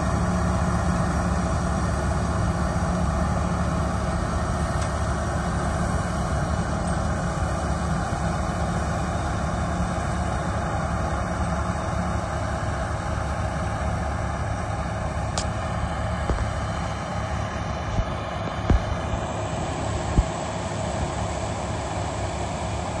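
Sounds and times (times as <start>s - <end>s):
combine harvester drone: 0.0s - 23.0s
low thumps: 17.8s - 19.1s, 20.1s - 20.4s.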